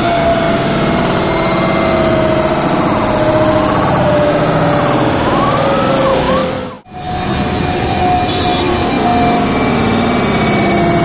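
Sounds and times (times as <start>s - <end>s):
jet engines roaring overhead: 0.0s - 11.0s.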